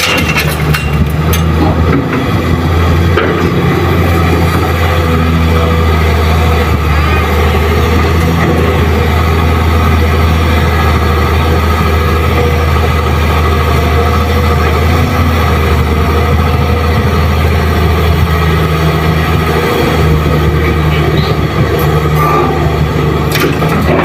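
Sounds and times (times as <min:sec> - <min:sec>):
excavator diesel engine droning: 0:00.0 - 0:24.0.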